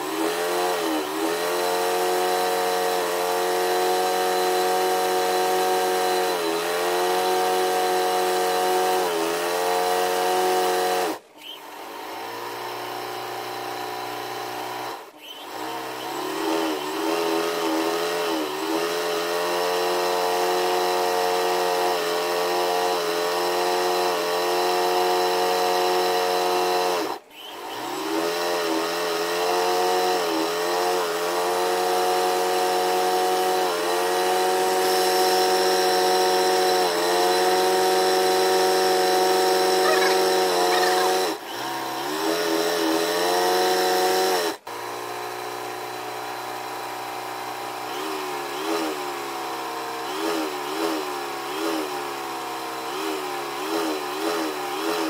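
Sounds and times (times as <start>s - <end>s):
motor-driven machine humming: 39.5s - 41.4s.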